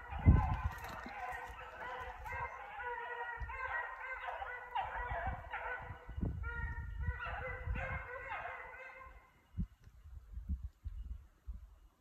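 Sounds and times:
hounds baying: 0:00.0 - 0:09.4.

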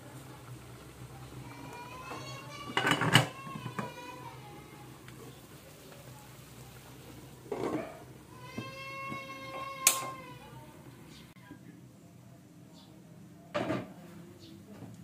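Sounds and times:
metal pot lid clatter: 0:02.8 - 0:03.3.

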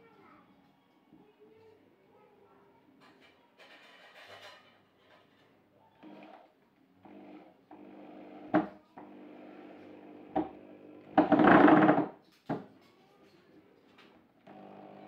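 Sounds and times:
faint background music: 0:00.0 - 0:07.0
cordless drill driving into wood: 0:10.4 - 0:12.1.

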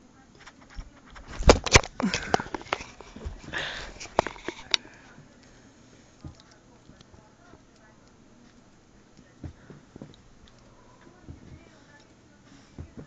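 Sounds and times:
thumps knocks and scuffles: 0:00.6 - 0:04.7.

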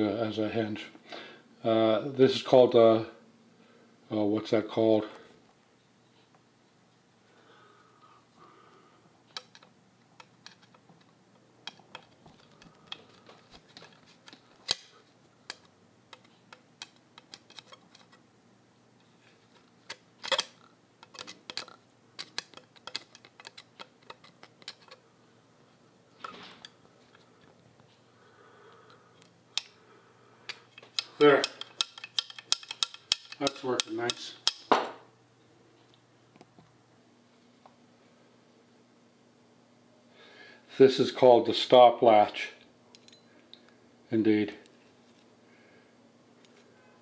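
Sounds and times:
screwdriver turning a screw: 0:19.9 - 0:25.0, 0:30.9 - 0:34.6.

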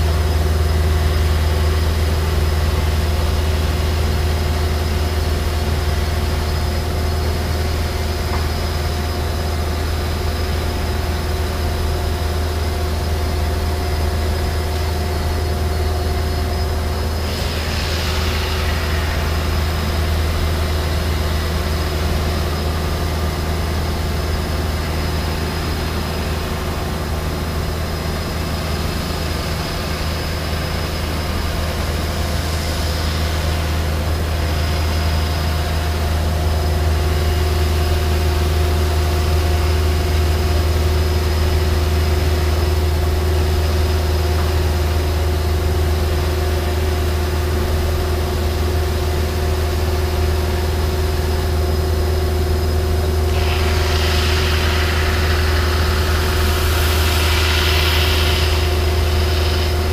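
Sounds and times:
machine hum with low drone: 0:00.0 - 0:59.9
hissing swell: 0:53.3 - 0:59.9.

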